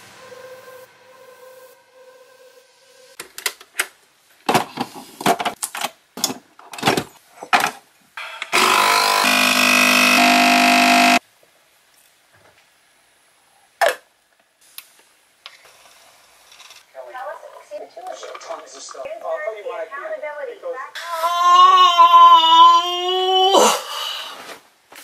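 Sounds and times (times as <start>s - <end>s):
coffee machine pump buzzing: 8.6s - 11.2s.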